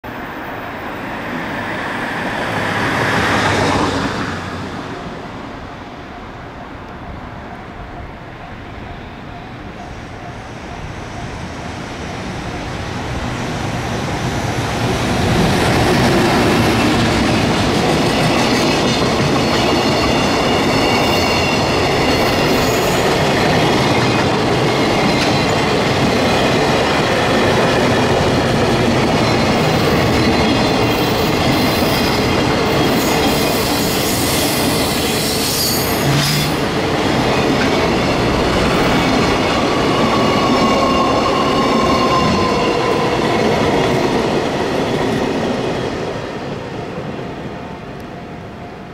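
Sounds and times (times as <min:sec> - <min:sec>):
freight train rolling past: 0:00.0 - 0:48.9
high ringing tones of wheels: 0:16.8 - 0:26.8.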